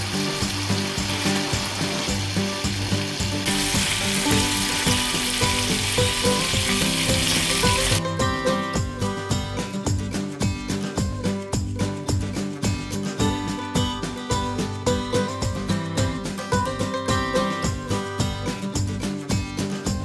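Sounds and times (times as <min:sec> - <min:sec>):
bacon sizzling in a skillet: 0:00.0 - 0:08.0
background music: 0:00.0 - 0:20.0.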